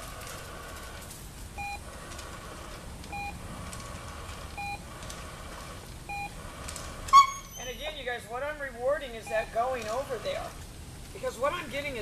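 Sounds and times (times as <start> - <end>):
short electronic beeps: 1.6 - 1.8, 3.1 - 3.4, 4.6 - 4.8, 6.1 - 6.3, 7.1 - 7.9, 9.2 - 9.6.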